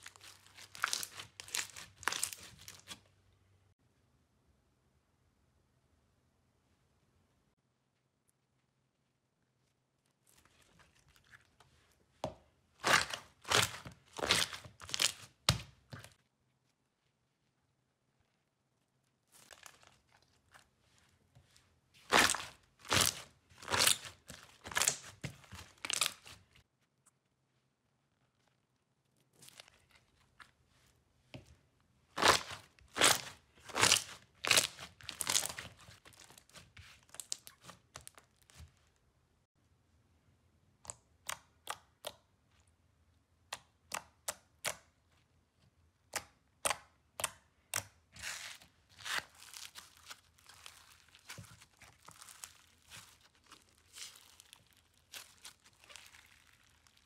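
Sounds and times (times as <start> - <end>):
hands squishing slime: 0.0 - 3.1, 10.2 - 16.2, 19.3 - 26.6, 32.1 - 38.8, 46.0 - 57.0.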